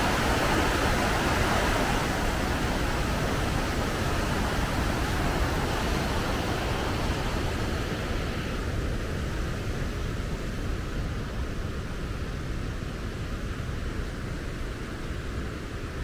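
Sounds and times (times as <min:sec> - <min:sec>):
waterfall roaring: 0:00.0 - 0:08.8.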